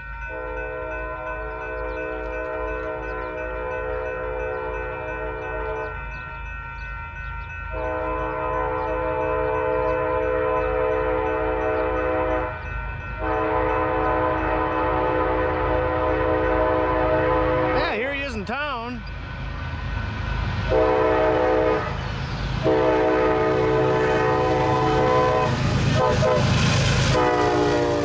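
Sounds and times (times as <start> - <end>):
low rumble of passing train: 0.0 - 28.0
locomotive air horn blasts: 0.3 - 5.9, 7.7 - 12.6, 13.2 - 17.9, 20.7 - 22.0, 22.6 - 28.0.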